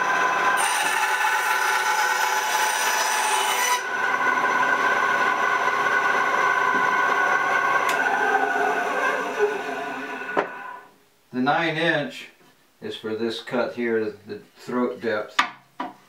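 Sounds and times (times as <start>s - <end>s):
saw blade cutting wood: 0.0s - 10.8s
band saw whining: 0.0s - 10.9s.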